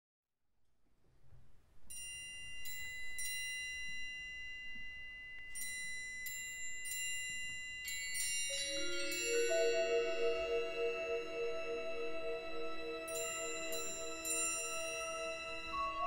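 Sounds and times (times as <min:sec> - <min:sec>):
bell-like mallet percussion notes: 0:01.9 - 0:16.0.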